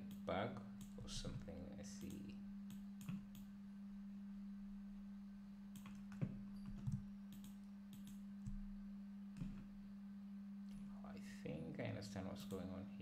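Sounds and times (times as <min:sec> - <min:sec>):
steady hum: 0:00.0 - 0:13.0
computer mouse clicks: 0:02.0 - 0:03.5, 0:05.7 - 0:08.6.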